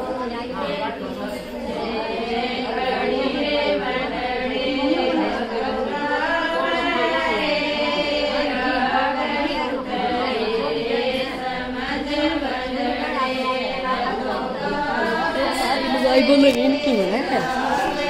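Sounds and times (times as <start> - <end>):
women singing unaccompanied: 0.0 - 18.0.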